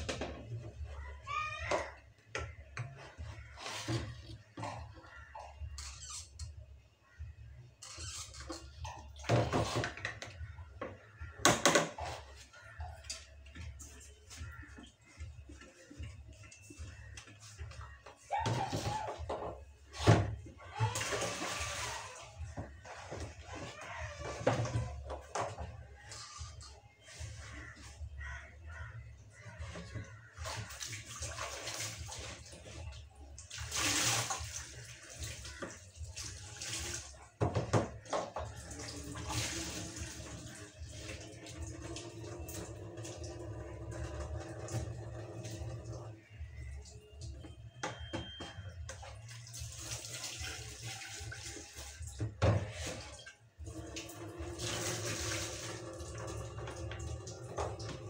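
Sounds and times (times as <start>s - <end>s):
tap water splashing into basin: 29.6s - 43.1s.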